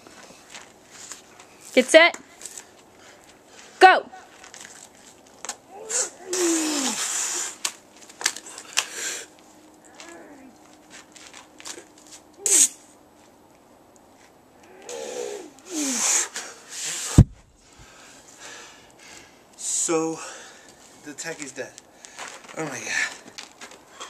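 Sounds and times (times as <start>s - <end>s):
man exhaling and grunting: 5.7s - 7.1s, 14.7s - 16.2s.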